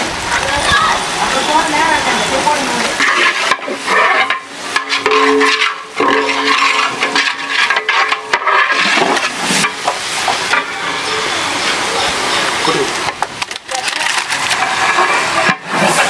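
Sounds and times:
spices sizzling in a pot: 1.8s - 10.6s
metal ladle scraping a pot: 2.9s - 10.9s, 13.8s - 16.0s.

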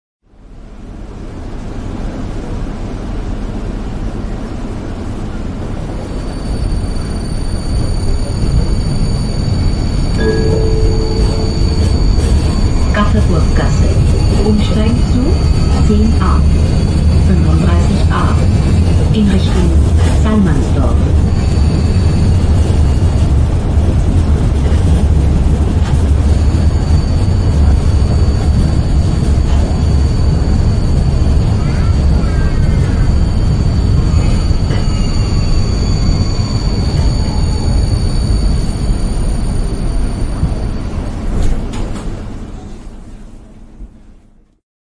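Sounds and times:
metro train rumble: 0.2s - 44.6s
high whine: 6.1s - 24.7s, 25.4s - 41.1s.

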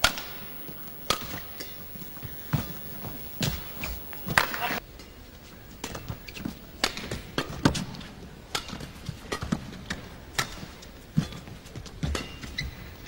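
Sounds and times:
rackets hitting shuttlecock: 0.0s - 4.8s
footfalls on court: 0.1s - 4.8s.

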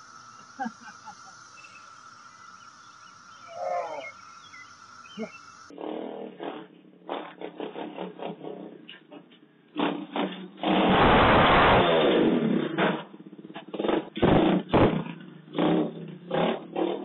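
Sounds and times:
dirt bike engine revving: 9.8s - 17.0s.

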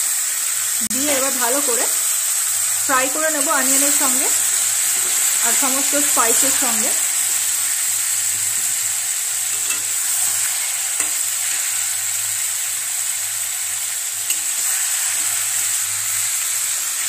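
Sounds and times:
meat sizzling in hot oil: 0.0s - 17.0s
metal spatula scraping pan: 3.4s - 5.6s, 9.4s - 11.8s.

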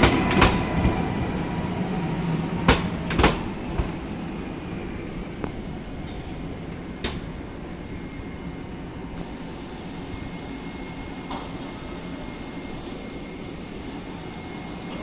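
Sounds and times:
train equipment rumble: 0.0s - 9.4s.

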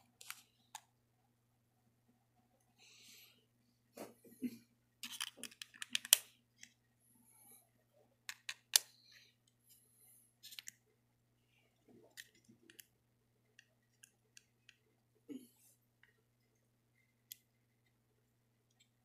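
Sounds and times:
plastic parts clicking together: 5.0s - 6.7s, 8.3s - 8.9s.

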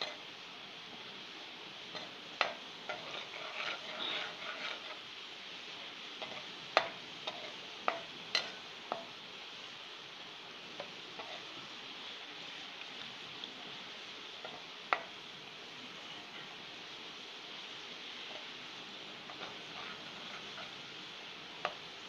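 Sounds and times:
garlic sizzling in hot oil: 0.0s - 22.0s
metal spoon scraping pan: 1.9s - 5.0s, 6.2s - 9.1s, 10.8s - 11.4s, 19.2s - 20.9s.

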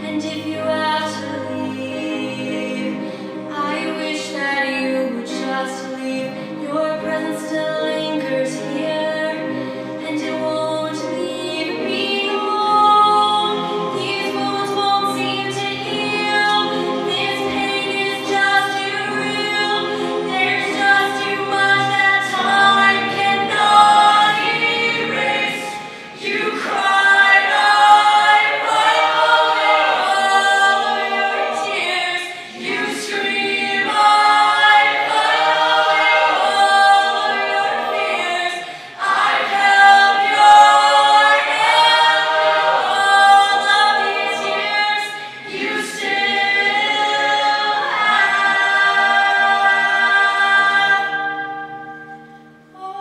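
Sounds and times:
woman singing into microphone: 0.0s - 28.9s
choir singing: 0.0s - 53.0s.

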